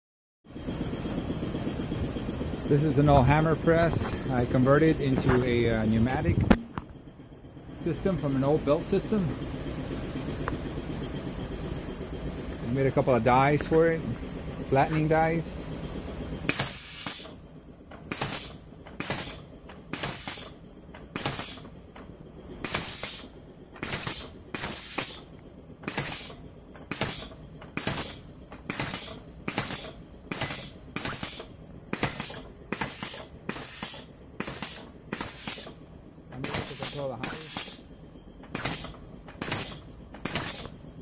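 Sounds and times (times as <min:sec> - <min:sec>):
pneumatic cylinder air bursts: 0:15.7 - 0:17.4, 0:18.0 - 0:21.7, 0:22.6 - 0:35.8, 0:36.4 - 0:37.9, 0:38.5 - 0:40.8.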